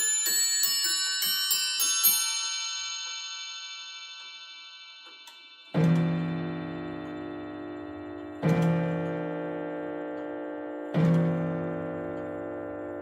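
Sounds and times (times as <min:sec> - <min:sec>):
clock chime bells ringing: 0:00.0 - 0:13.0
deep gong strike: 0:05.8 - 0:10.1.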